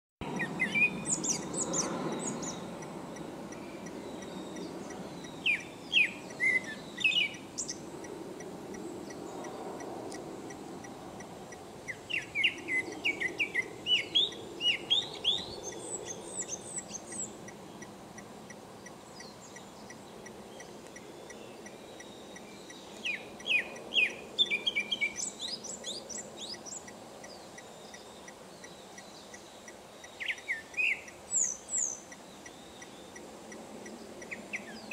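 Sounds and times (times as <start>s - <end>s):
thrush singing whistled phrases: 5.4s - 7.8s.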